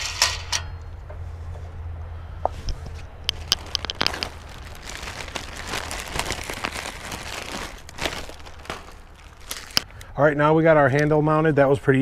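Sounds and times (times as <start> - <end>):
plastic wrapping crinkling: 3.3 - 9.9.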